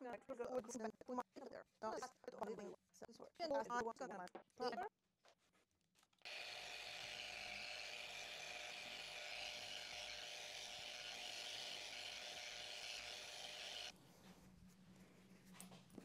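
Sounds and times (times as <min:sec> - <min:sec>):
electric polishing tool whirring: 0:06.3 - 0:13.9.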